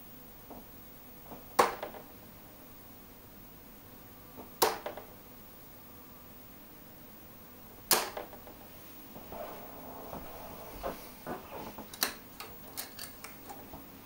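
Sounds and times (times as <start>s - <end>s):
darts thudding into dartboard: 1.3s - 2.1s, 4.4s - 5.1s, 7.9s - 8.5s.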